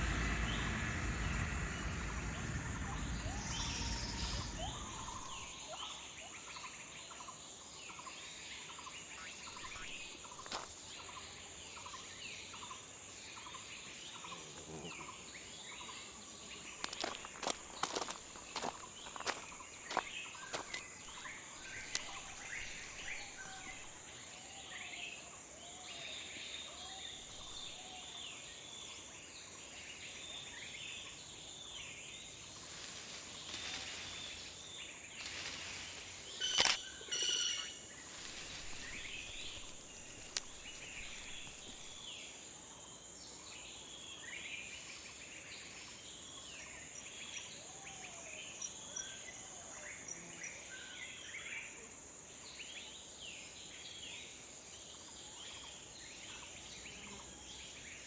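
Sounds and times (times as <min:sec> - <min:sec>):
birds chirping and calling: 0:00.0 - 0:05.9, 0:16.8 - 0:24.0, 0:36.4 - 0:42.0
high insect drone: 0:00.0 - 0:58.0
sharp clicks: 0:36.5 - 0:36.8.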